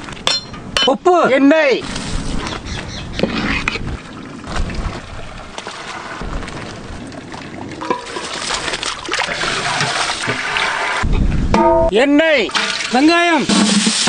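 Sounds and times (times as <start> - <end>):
metal pots knocking: 0.2 - 1.0, 7.8 - 8.4, 11.6 - 12.9
water pouring and splashing: 1.8 - 11.5, 12.2 - 14.0.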